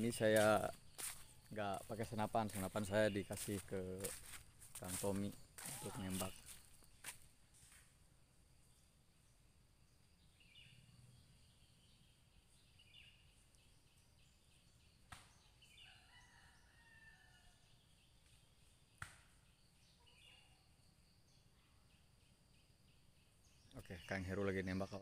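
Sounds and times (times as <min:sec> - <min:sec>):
birds calling: 0:00.0 - 0:07.0.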